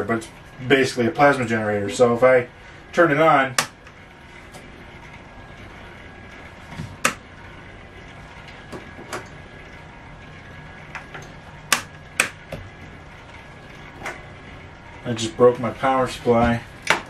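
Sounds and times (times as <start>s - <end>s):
low hum: 0.0s - 17.0s
switch clicks and snaps: 3.6s - 3.8s, 11.7s - 12.4s.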